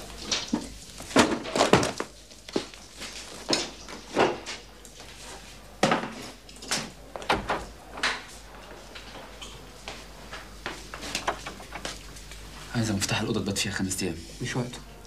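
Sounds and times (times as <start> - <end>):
wooden door knocks and thuds: 7.2 - 7.7.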